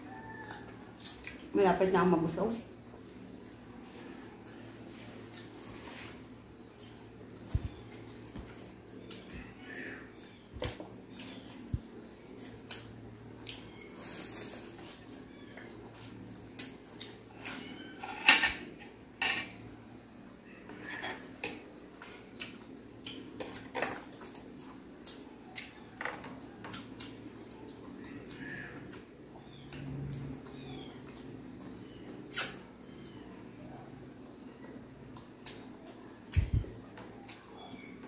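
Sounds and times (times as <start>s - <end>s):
chewing sounds: 0.4s - 1.5s, 9.0s - 17.7s, 22.0s - 32.6s
cutlery clinking on plates: 17.9s - 19.6s.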